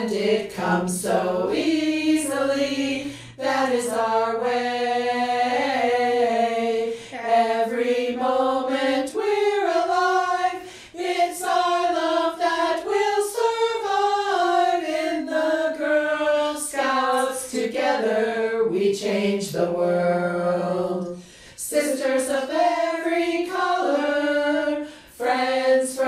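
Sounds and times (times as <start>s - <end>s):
women singing without instruments: 0.0s - 26.0s.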